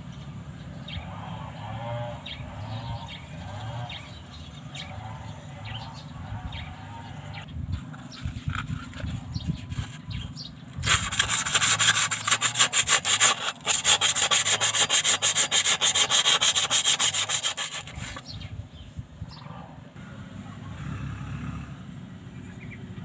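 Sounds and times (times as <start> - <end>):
sandpaper scratching on metal: 10.8 - 18.2.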